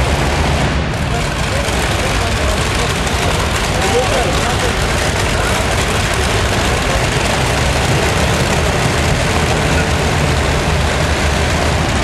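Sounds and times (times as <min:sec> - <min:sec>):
pulling tractor engine idling: 0:00.0 - 0:12.0.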